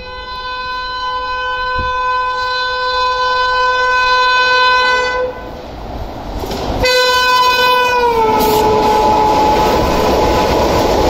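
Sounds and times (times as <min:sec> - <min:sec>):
train horn blast: 0:00.0 - 0:05.6, 0:06.8 - 0:10.0
train rumbling: 0:00.0 - 0:11.0.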